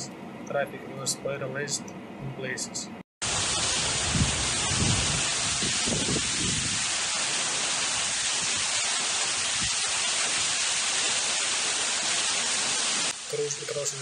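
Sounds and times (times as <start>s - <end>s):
heavy rain pouring: 3.2s - 14.0s
wind buffeting microphone: 3.4s - 7.0s.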